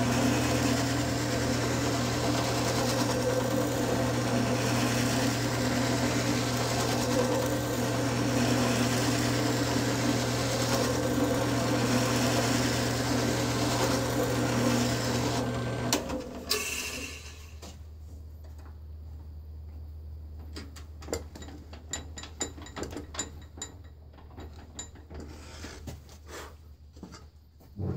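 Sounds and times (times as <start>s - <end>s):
sanding drum sanding plywood: 0.0s - 15.4s
drill press motor running: 0.0s - 17.5s.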